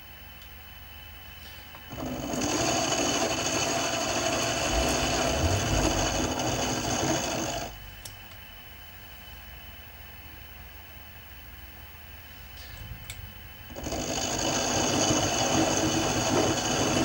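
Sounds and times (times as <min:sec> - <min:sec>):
end mill cutting metal: 0:01.9 - 0:07.8, 0:13.7 - 0:17.0
milling machine spindle motor: 0:01.9 - 0:07.8, 0:13.7 - 0:17.0
click: 0:08.0 - 0:08.4.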